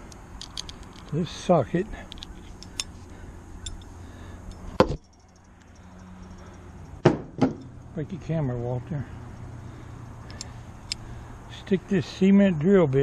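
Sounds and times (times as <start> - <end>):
metal tools clinking: 0.4 - 7.0
sharp knocks: 7.0 - 7.7.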